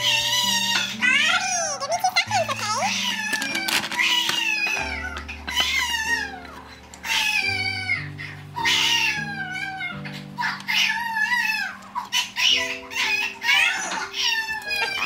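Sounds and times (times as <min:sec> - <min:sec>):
baby crying: 0:00.0 - 0:15.0.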